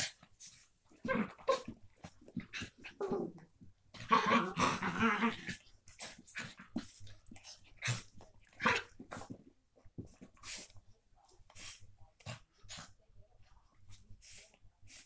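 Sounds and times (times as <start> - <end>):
dog play growl: 0.9 - 9.4.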